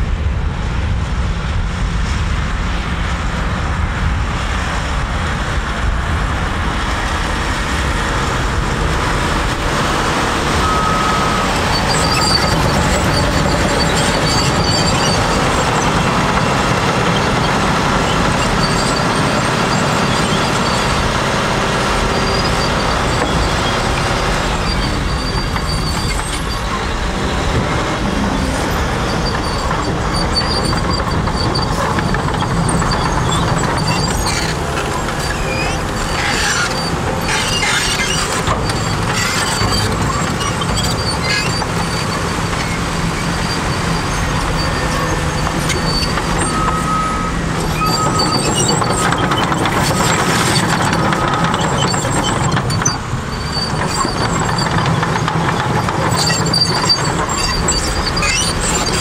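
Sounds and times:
diesel dump truck running: 0:00.0 - 0:59.0.

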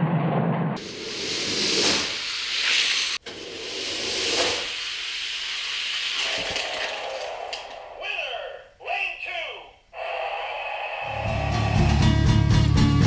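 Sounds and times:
toy cars rolling on plastic track: 0:06.0 - 0:07.8.

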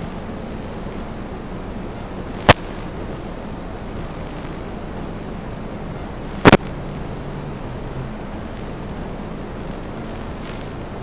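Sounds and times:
sharp loud pops: 0:02.4 - 0:02.9, 0:06.4 - 0:06.8.

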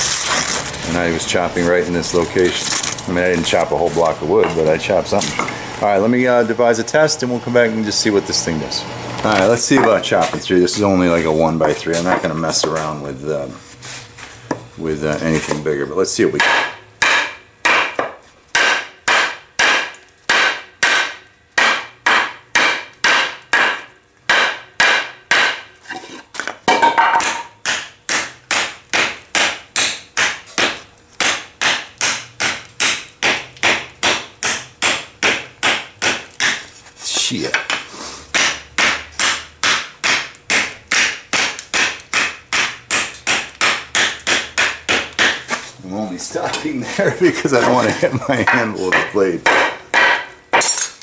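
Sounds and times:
knife chopping into wood board: 0:27.0 - 0:36.6, 0:37.6 - 0:45.6.

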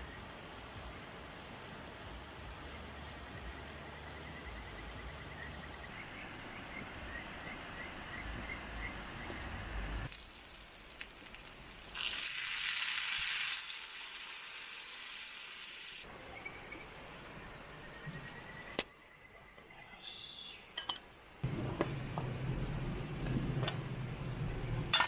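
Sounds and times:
food sizzling in a pan: 0:10.1 - 0:16.1.

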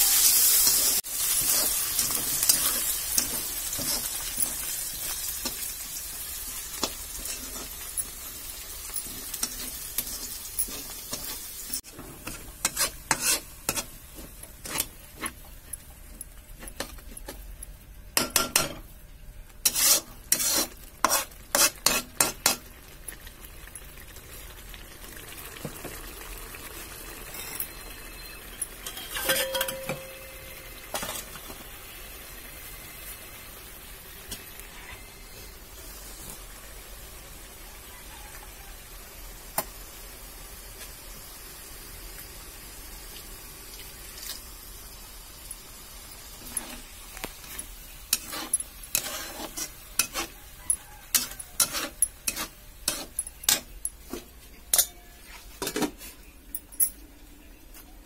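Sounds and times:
spatula scraping a pan: 0:00.0 - 0:17.4, 0:19.6 - 0:22.8, 0:27.3 - 0:30.1, 0:30.9 - 0:31.4, 0:46.3 - 0:56.2
food sizzling in oil: 0:00.0 - 0:56.4.

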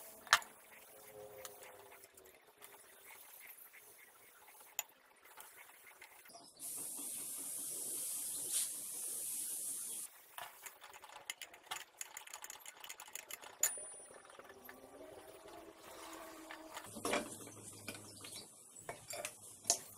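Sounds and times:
steady hiss: 0:02.7 - 0:10.7
metal parts clicking and tapping: 0:10.3 - 0:14.8.

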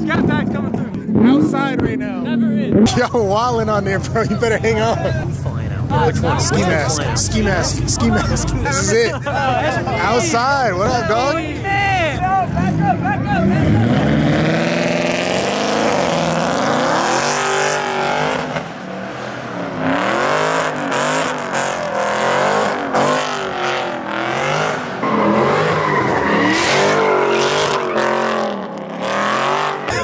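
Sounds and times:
tyres spinning and squealing: 0:02.8 - 0:30.0
car engine revving hard: 0:11.8 - 0:30.0.

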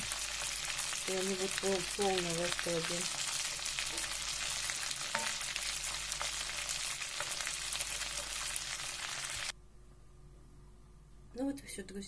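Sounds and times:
fish sizzling in a pan: 0:00.0 - 0:09.5.

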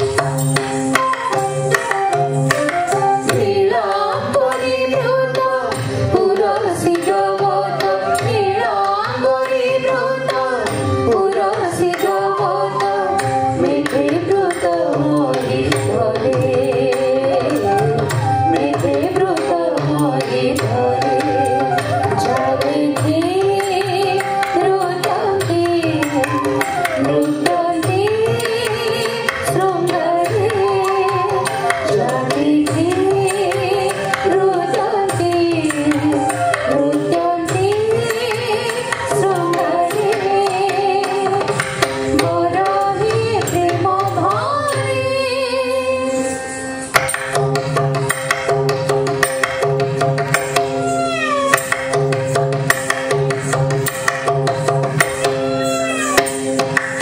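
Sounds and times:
hand drum rhythm: 0:00.0 - 0:45.3, 0:46.9 - 0:57.0
ornamented melody: 0:20.4 - 0:27.8, 0:45.2 - 0:53.6, 0:54.3 - 0:57.0.

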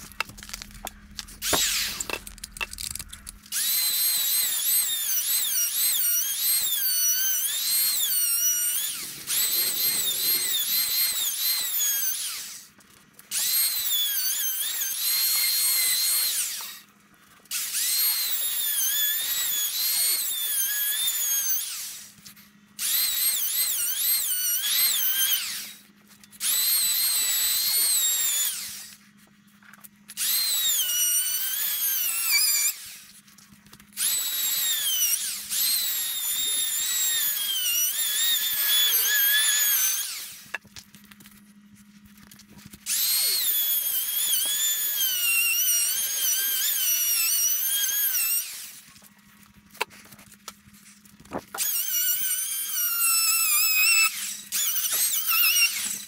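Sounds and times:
power tool motor whining: 0:00.0 - 0:29.0, 0:30.1 - 0:33.2, 0:33.9 - 0:40.6, 0:42.8 - 0:48.9, 0:51.5 - 0:56.0.

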